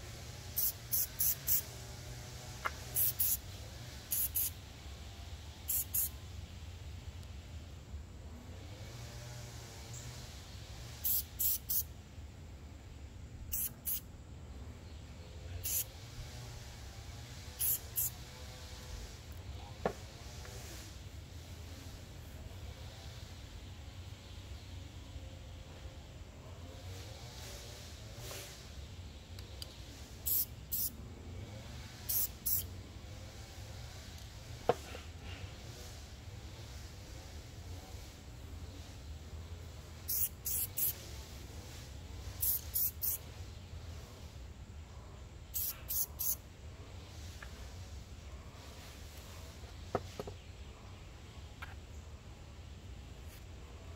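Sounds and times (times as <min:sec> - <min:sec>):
spray can hissing: 0:00.5 - 0:01.7, 0:02.6 - 0:03.4, 0:04.1 - 0:04.5, 0:05.7 - 0:06.1, 0:11.0 - 0:11.9, 0:13.5 - 0:14.0, 0:15.6 - 0:15.9, 0:17.6 - 0:18.2, 0:30.2 - 0:30.9, 0:32.1 - 0:32.7, 0:40.0 - 0:41.2, 0:42.3 - 0:43.2, 0:45.5 - 0:46.4.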